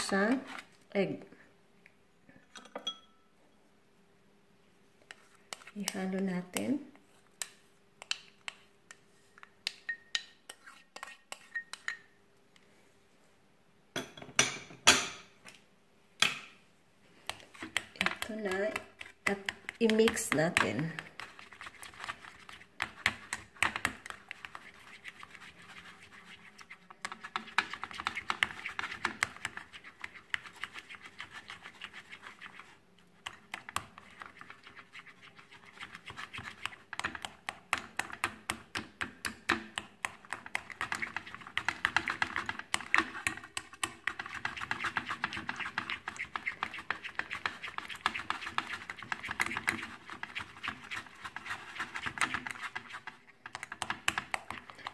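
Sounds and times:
spatula scraping glass bowl: 0:00.0 - 0:00.7, 0:10.5 - 0:12.1.

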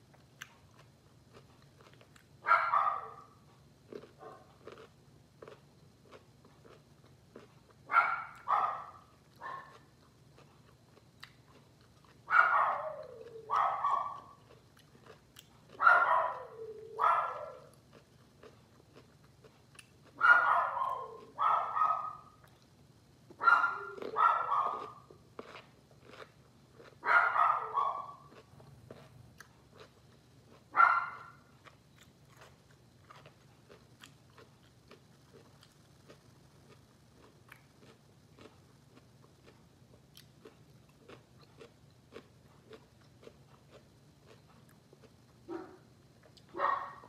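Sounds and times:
chewing crisp pickles: 0:00.0 - 0:47.0
dog barking: 0:02.4 - 0:03.4, 0:04.0 - 0:04.8, 0:07.9 - 0:09.8, 0:12.3 - 0:17.8, 0:20.1 - 0:22.4, 0:23.4 - 0:25.1, 0:26.8 - 0:28.4, 0:30.7 - 0:31.5, 0:45.5 - 0:45.8, 0:46.5 - 0:47.0.

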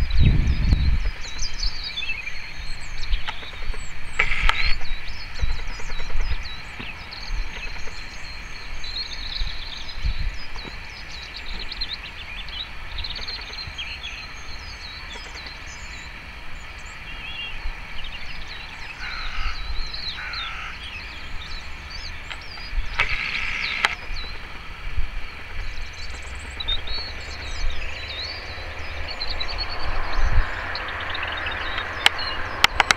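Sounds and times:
robin singing: 0:00.0 - 0:32.9
low rumble: 0:21.1 - 0:32.9.

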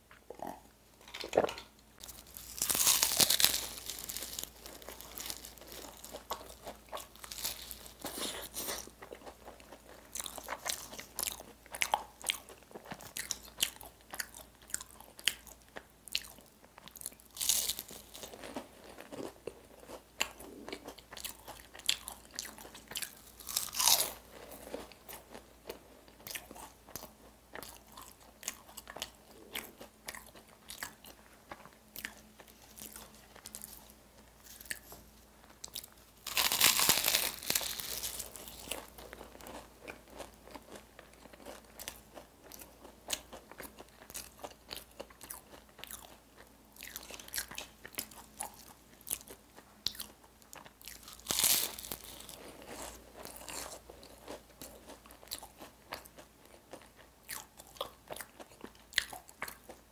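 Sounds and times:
crunchy bites: 0:01.3 - 0:09.4, 0:17.0 - 0:33.8, 0:35.6 - 0:46.2, 0:46.8 - 0:56.0
biting and chewing pastry: 0:01.3 - 0:59.9.

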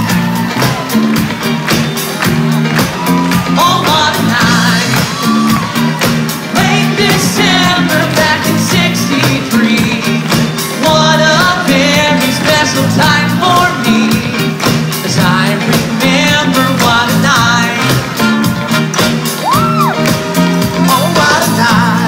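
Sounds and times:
live rock and roll band: 0:00.0 - 0:22.0
men singing into microphones: 0:03.4 - 0:05.3, 0:06.5 - 0:18.0, 0:20.8 - 0:22.0.

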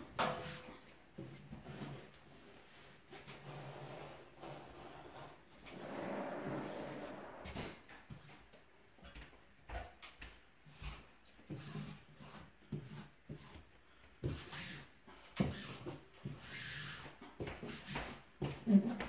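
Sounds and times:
wallpaper knocks and scrapes: 0:00.1 - 0:08.3, 0:10.7 - 0:14.8.

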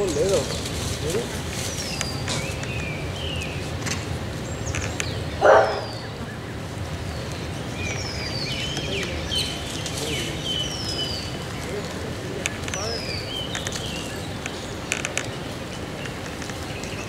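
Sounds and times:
low background noise: 0:00.0 - 0:17.0
small birds whistling: 0:04.4 - 0:11.8.

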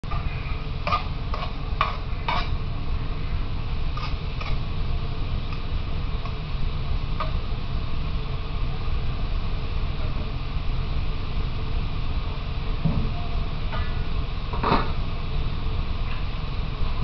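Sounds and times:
metal spatula scraping a pan: 0:00.1 - 0:02.6, 0:03.9 - 0:04.6.

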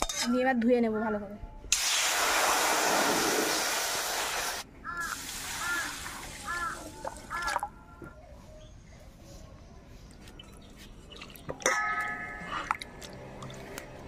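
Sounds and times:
crow cawing: 0:04.9 - 0:07.6.

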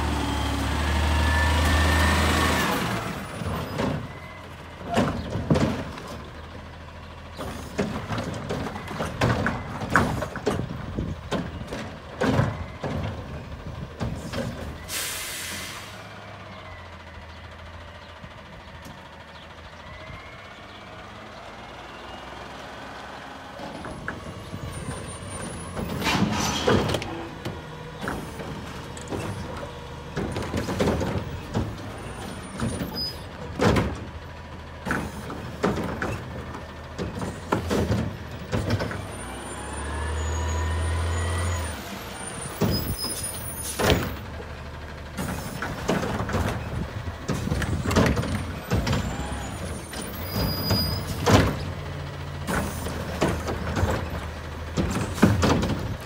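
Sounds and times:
bangs and clanks of carts: 0:00.0 - 0:16.2, 0:23.5 - 0:56.0
diesel engine running and revving: 0:00.0 - 0:56.0
hydraulic whines: 0:38.3 - 0:44.2, 0:47.4 - 0:51.8.

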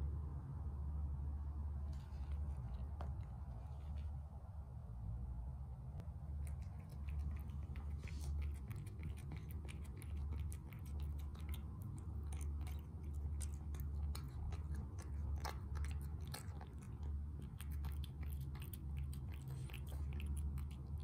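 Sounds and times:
low rumble: 0:00.0 - 0:21.0
cat crunching dry food: 0:06.4 - 0:21.0.

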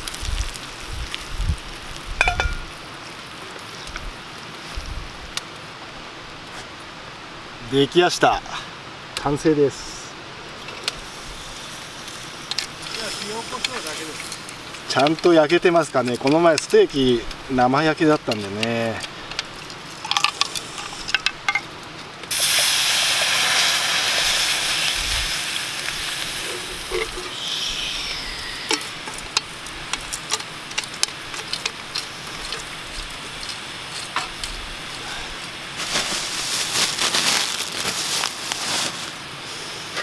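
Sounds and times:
food sizzling in a hot pan: 0:00.0 - 0:04.8, 0:10.6 - 0:19.0, 0:22.3 - 0:38.6
crackles and clicks: 0:00.0 - 0:05.7, 0:10.5 - 0:40.0.

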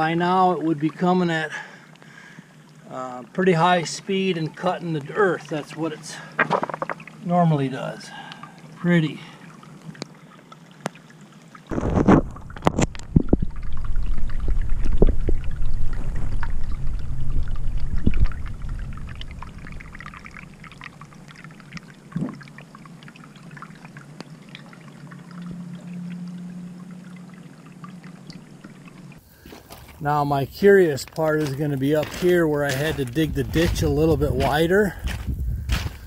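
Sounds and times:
water trickling over rocks: 0:00.0 - 0:35.6
low rumble: 0:11.7 - 0:21.7.

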